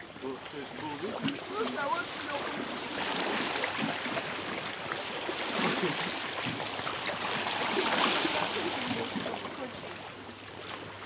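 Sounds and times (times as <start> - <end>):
sea water lapping over rocks: 0.0 - 11.0.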